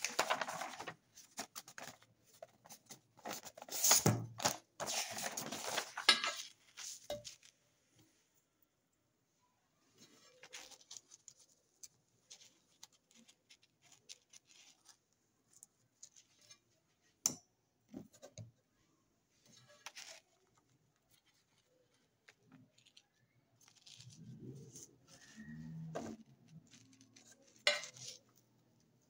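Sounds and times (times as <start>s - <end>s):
paint tubes clicking and rustling: 0.0s - 7.6s.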